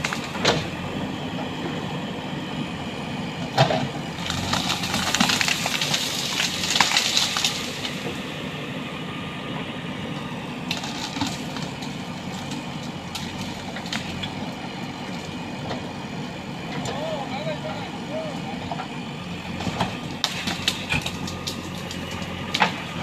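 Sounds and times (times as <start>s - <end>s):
branches cracking and snapping: 0.0s - 0.7s, 3.6s - 8.3s, 10.6s - 15.9s, 19.6s - 23.0s
diesel engine running: 0.0s - 23.0s.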